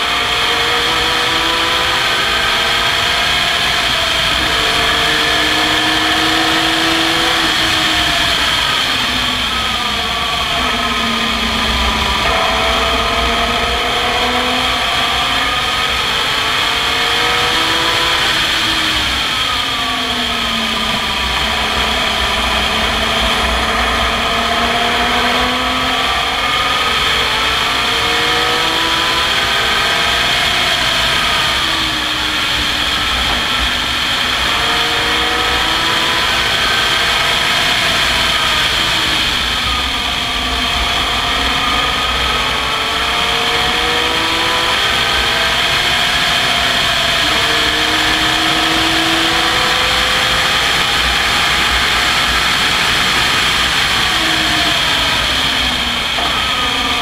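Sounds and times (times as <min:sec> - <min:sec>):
wind rumble: 0:00.0 - 0:34.7
race car engine revving: 0:00.0 - 0:57.0.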